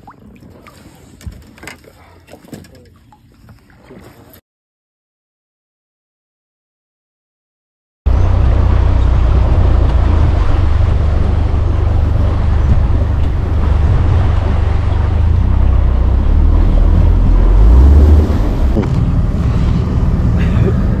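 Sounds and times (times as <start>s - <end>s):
outboard motor rumbling: 0.0s - 4.4s, 8.1s - 21.0s
vehicle hum: 8.1s - 21.0s
wind buffeting microphone: 8.1s - 21.0s.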